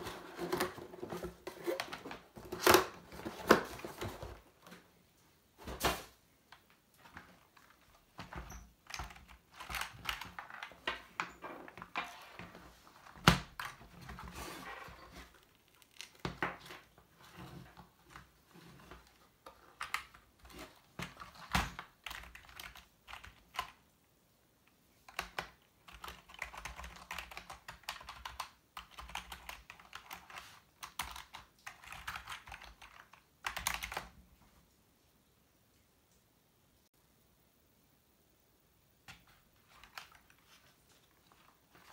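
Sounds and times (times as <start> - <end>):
keyboard typing clatter: 8.2 - 11.2, 21.0 - 23.8, 25.1 - 34.1, 39.6 - 40.4.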